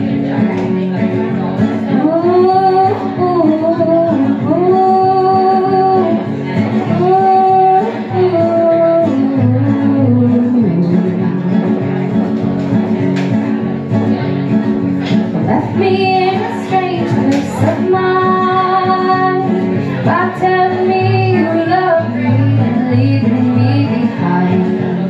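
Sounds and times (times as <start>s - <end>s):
guitar playing: 0.0s - 25.0s
woman singing long notes: 1.9s - 6.2s, 15.4s - 25.0s.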